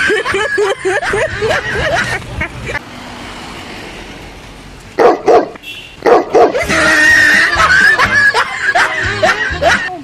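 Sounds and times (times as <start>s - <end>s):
dog barking: 5.0s - 6.7s.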